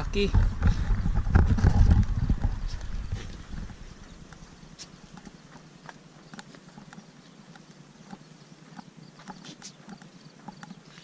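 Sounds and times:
wind rumble on microphone: 0.0 - 5.6
goat hooves on hard ground: 0.0 - 11.0.

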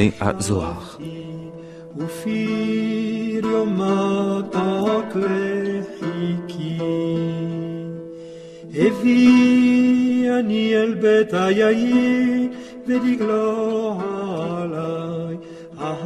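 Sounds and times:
solo voice chanting: 0.0 - 8.0.

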